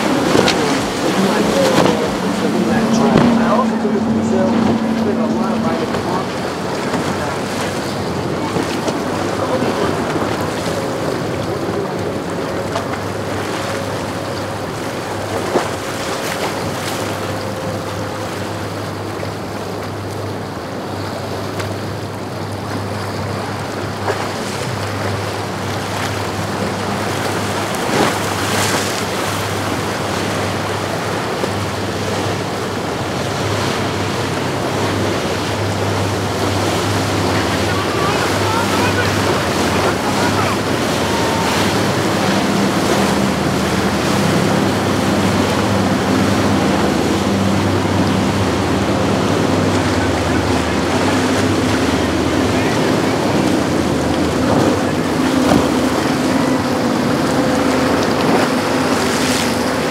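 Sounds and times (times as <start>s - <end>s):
wind on microphone: 0.0s - 18.0s
powerboat engines droning: 0.0s - 59.9s
surf and boat wakes washing: 0.0s - 59.9s.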